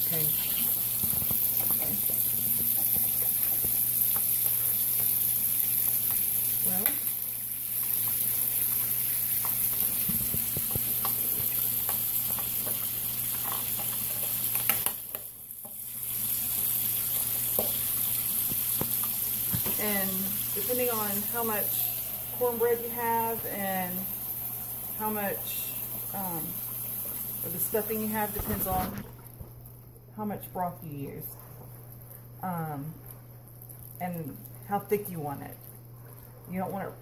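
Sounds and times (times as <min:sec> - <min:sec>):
steady hiss: 0:00.0 - 0:29.1.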